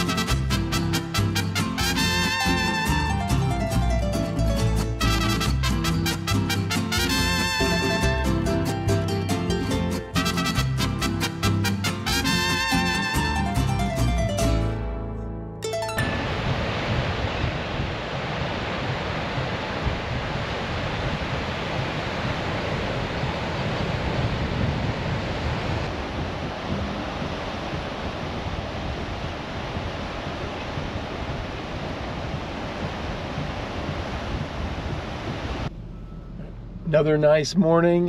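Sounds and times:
ocean surf washing onto beach: 0.0 - 2.8, 16.0 - 35.7
wind buffeting microphone: 16.1 - 35.7.

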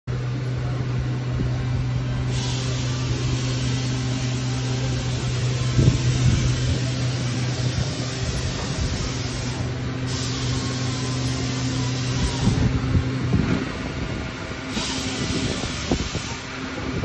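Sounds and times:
steady machine hum: 0.1 - 17.0
hiss: 2.3 - 12.7, 14.7 - 16.6.

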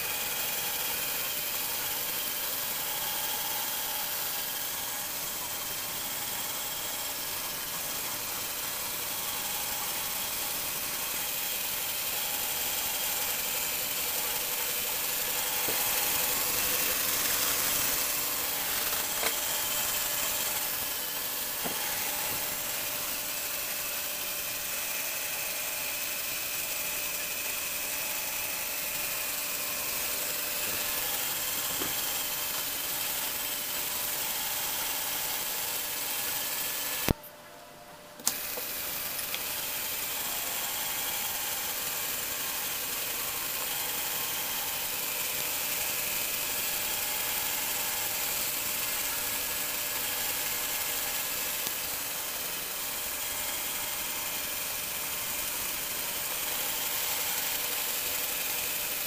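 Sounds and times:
motor and gears whirring: 0.0 - 37.5, 38.1 - 59.0.

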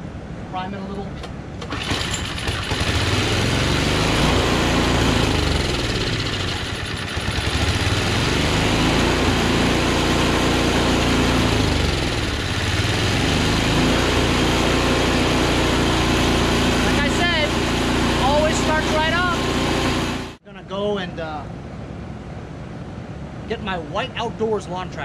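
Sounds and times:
recoil starter pull: 1.6 - 9.2
snowblower engine running: 1.6 - 20.4.

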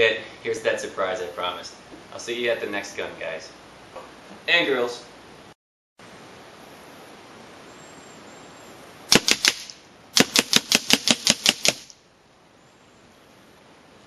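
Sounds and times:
air rifle firing rapidly: 9.1 - 11.9.

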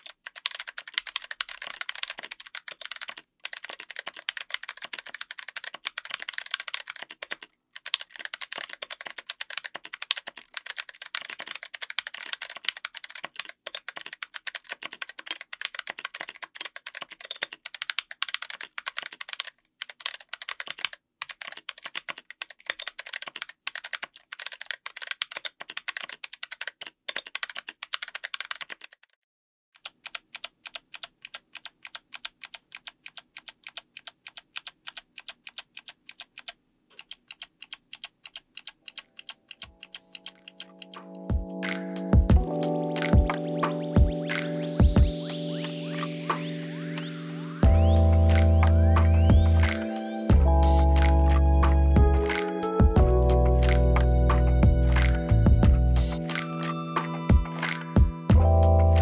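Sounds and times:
clicky mechanical keyboard typing: 0.0 - 29.2, 29.8 - 44.8.

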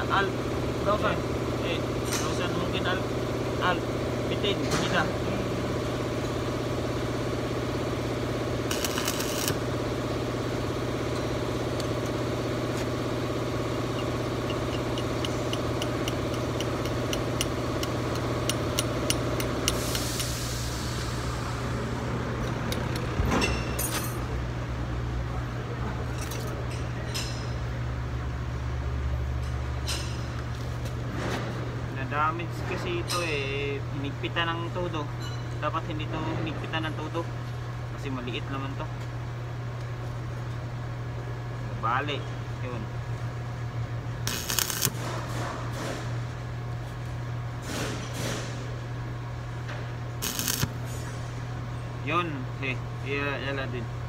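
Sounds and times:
machine hum: 0.0 - 25.3, 42.4 - 47.6, 48.5 - 54.0.

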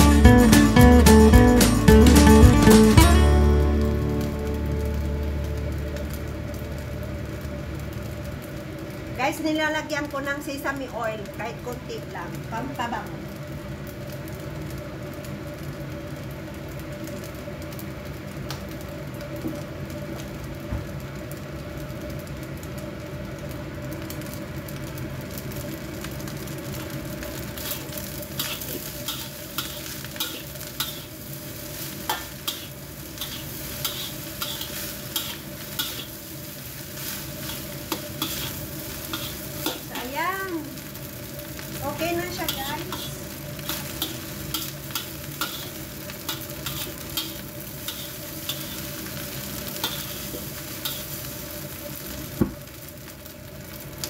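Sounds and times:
rice sizzling in a wok: 0.0 - 54.0
metal spatula scraping a wok: 27.6 - 40.0, 42.4 - 51.4.

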